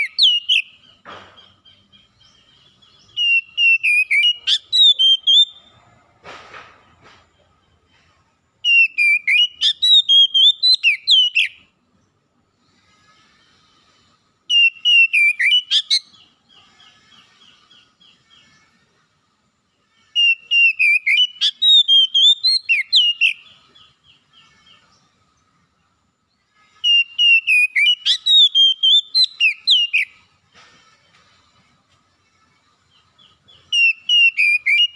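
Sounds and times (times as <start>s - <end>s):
bird singing whistled phrases: 0.0s - 0.7s, 3.1s - 5.6s, 8.6s - 11.6s, 14.5s - 16.2s, 20.2s - 23.5s, 26.8s - 30.2s, 33.6s - 34.9s
bird twittering: 20.2s - 25.1s, 26.8s - 30.3s.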